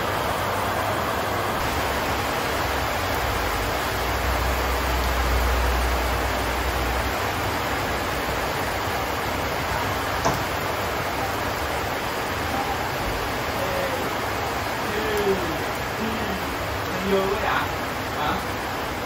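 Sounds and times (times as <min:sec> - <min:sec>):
heavy rain falling: 0:00.0 - 0:19.0.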